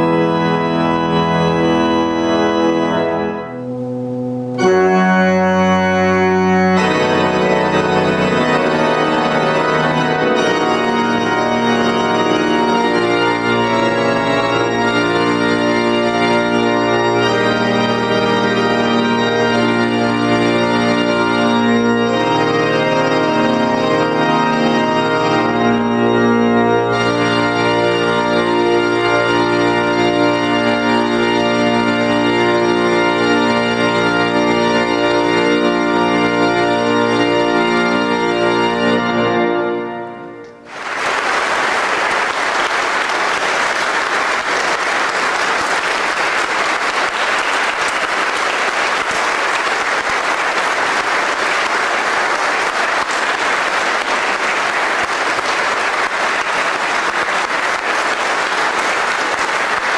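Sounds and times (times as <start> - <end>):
pipe organ chords: 0.0 - 59.9
audience applauding: 40.6 - 59.9.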